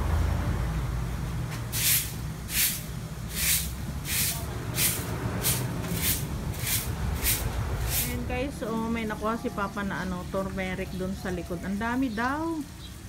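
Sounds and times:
low steady rumble: 0.0 - 12.3
short swishing strokes: 1.7 - 8.2.

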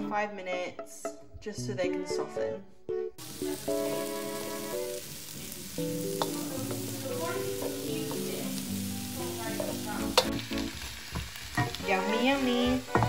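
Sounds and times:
background music with held notes: 0.0 - 13.0
vegetables sizzling in a frying pan: 3.2 - 13.0
spatula clicking against pan: 6.2 - 6.8, 10.2 - 10.4.

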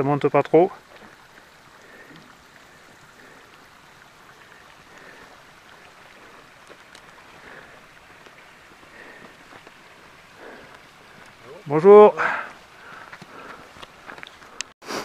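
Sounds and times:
rushing background hiss: 0.0 - 15.0
footsteps on rocky path: 4.9 - 14.8.

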